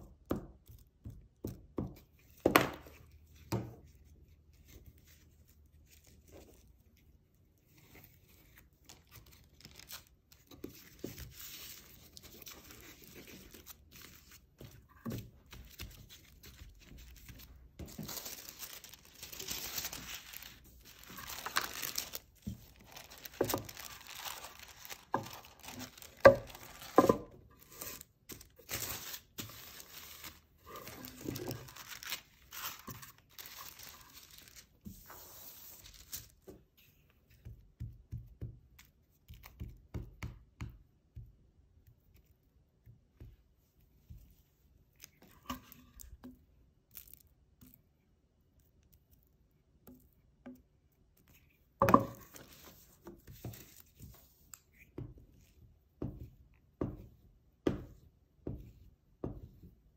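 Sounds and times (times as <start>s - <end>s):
tissue paper rustling: 7.7s - 36.4s.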